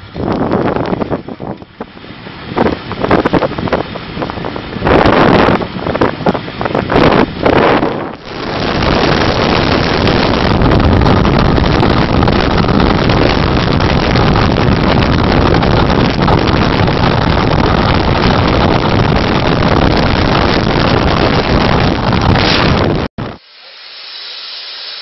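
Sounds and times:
wind rushing on microphone: 0.0 - 23.4.

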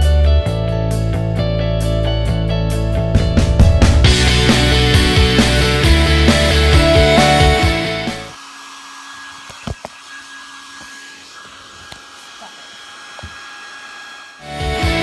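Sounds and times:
rock music: 0.0 - 8.3, 14.4 - 15.0
hair dryer running: 3.4 - 15.0.

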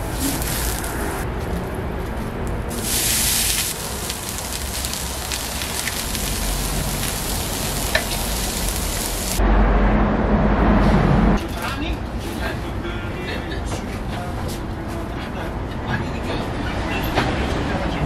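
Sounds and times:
low street rumble: 0.0 - 18.0
butter sizzling on a griddle: 0.2 - 1.0, 2.7 - 9.4.

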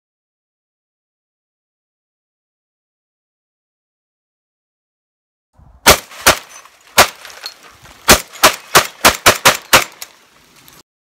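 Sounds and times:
shotgun firing rapidly: 5.8 - 7.2, 8.1 - 10.0.

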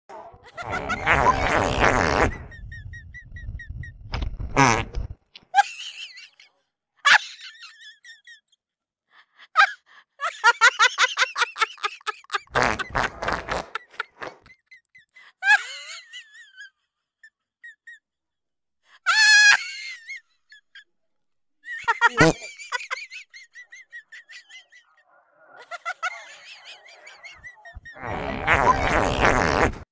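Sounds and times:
people laughing: 0.3 - 3.0, 5.6 - 8.6, 9.5 - 18.1, 19.1 - 20.9, 21.6 - 29.3
fart noises: 0.6 - 2.7, 4.4 - 5.2, 12.5 - 14.5, 27.8 - 29.9.

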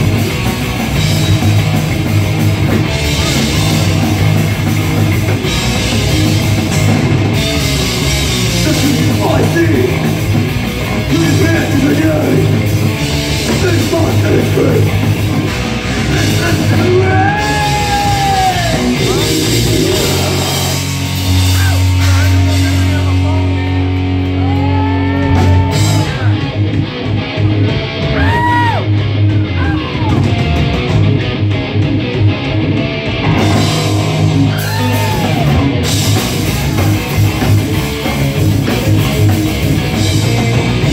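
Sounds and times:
distorted electric guitars: 0.0 - 40.9
drum kit: 0.0 - 40.9
person singing: 16.2 - 20.9.

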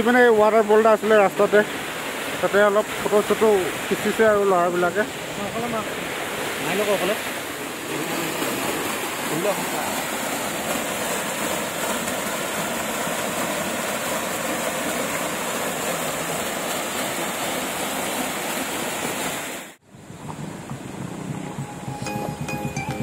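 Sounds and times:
waterfall rushing: 0.0 - 23.0
background music: 21.1 - 23.0.

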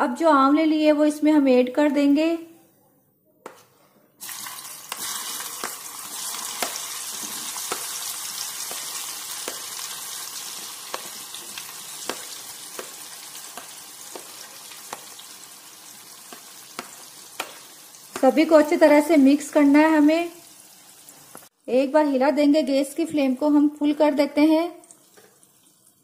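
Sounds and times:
food sizzling in hot oil: 4.2 - 21.5.

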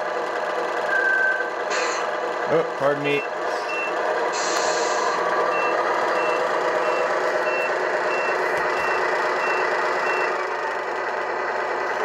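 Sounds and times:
simulated truck engine: 0.0 - 12.0
reversing beeps: 0.9 - 1.5, 3.1 - 4.0, 5.5 - 10.4.

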